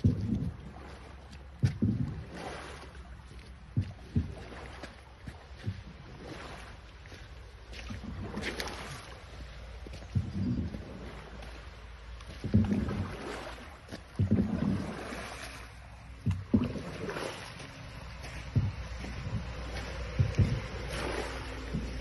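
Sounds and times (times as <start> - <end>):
low thumps: 0.0 - 0.8, 1.5 - 2.4, 3.2 - 4.5, 5.3 - 6.2, 9.8 - 11.6, 12.2 - 13.2, 13.8 - 22.0
paddle knocking boat: 0.0 - 22.0
water swishing around oar: 0.0 - 22.0
wind rumble on microphone: 0.0 - 22.0
wind on microphone: 9.9 - 11.4, 16.1 - 22.0.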